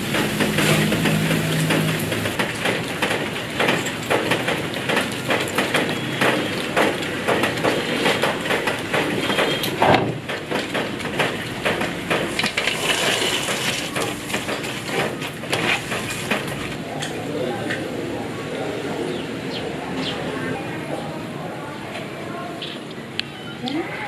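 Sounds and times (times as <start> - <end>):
hot oil crackling and sizzling: 0.0 - 7.8, 11.4 - 16.8.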